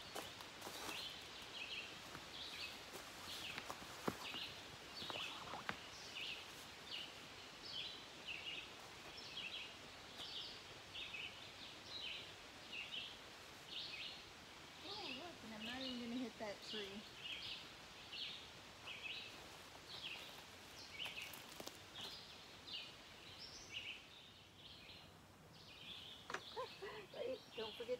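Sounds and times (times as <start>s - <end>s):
quiet woodland background: 0.0s - 27.9s
bird chirping: 0.8s - 14.2s, 22.0s - 27.9s.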